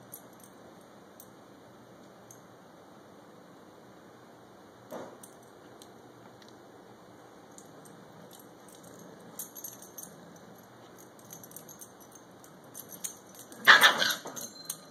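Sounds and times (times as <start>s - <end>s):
collar tags jingling: 7.5s - 14.9s
dog yelping: 13.6s - 14.5s.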